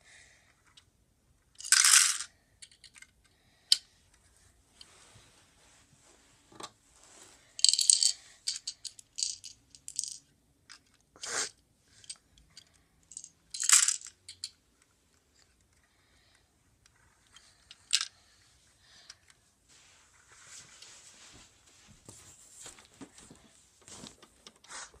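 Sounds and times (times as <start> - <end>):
plastic toy parts clicking and rattling: 1.5 - 3.9, 7.6 - 11.0, 12.0 - 14.6, 16.8 - 18.2
faint rustling: 4.2 - 7.6, 14.7 - 25.0.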